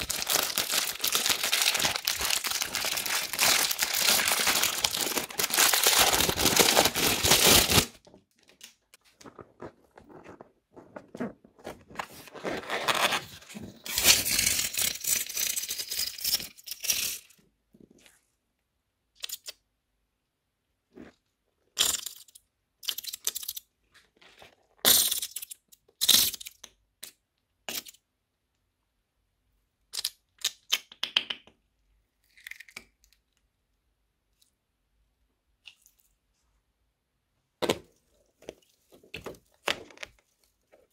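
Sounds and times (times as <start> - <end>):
foam beads crackling and crunching: 0.0 - 7.9.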